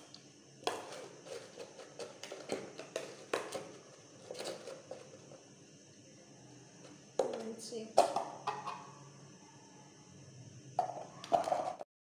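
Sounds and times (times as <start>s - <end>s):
taps and scrapes of box grater: 0.7s - 3.7s.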